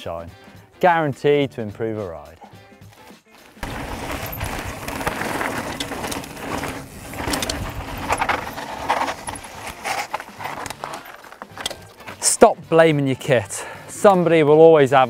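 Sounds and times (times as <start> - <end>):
bike tyres crunching on dirt: 3.3 - 12.4
bike chains rattling: 3.6 - 12.3
bikes knocking on bumps: 3.6 - 12.4.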